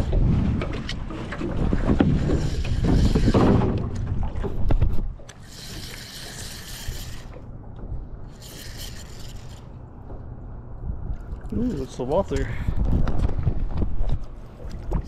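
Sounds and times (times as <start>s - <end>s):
wind on microphone: 0.0s - 9.6s, 10.7s - 15.0s
fishing reel gears whirring: 2.2s - 3.6s, 5.3s - 7.5s, 8.3s - 9.8s.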